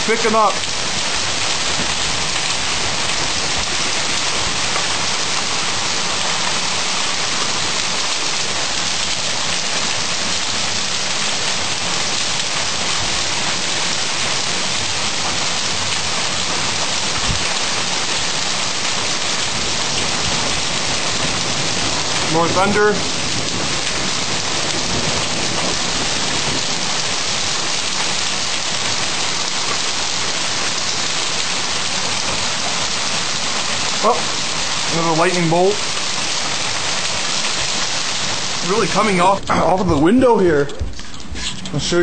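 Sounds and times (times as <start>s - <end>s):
heavy rain pouring: 0.0s - 42.0s.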